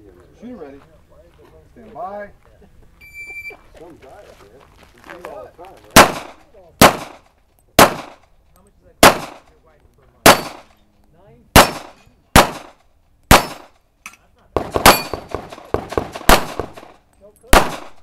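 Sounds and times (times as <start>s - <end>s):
gunshots: 5.9s - 8.2s, 9.0s - 9.5s, 10.2s - 10.7s, 11.5s - 13.8s, 14.6s - 18.0s
metallic clang of steel targets: 10.2s - 10.8s, 13.3s - 18.0s.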